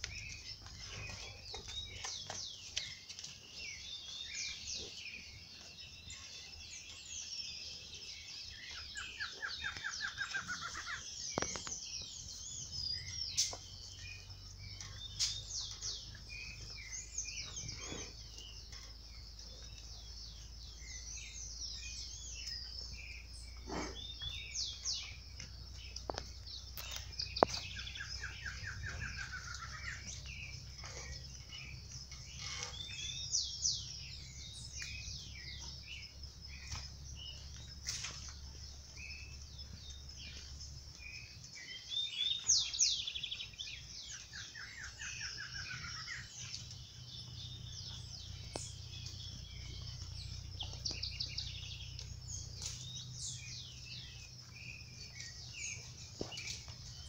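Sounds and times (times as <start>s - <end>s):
birds chirping and singing: 0.0s - 57.0s
steady low hum: 43.0s - 57.0s.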